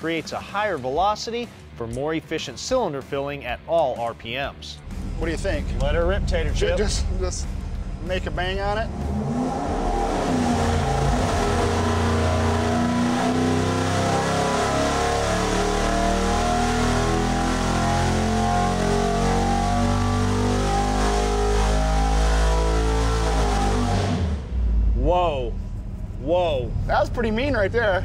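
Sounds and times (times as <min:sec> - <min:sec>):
loud engine at full throttle: 0:05.6 - 0:24.8.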